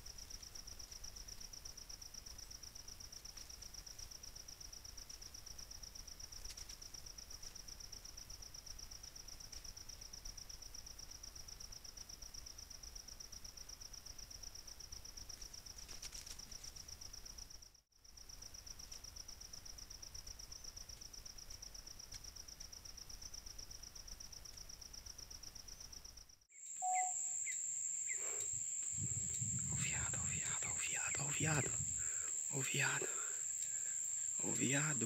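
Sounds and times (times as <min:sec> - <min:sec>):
pulsing trill of night insects: 0:00.0 - 0:35.0
high unbroken insect buzz: 0:26.6 - 0:35.0.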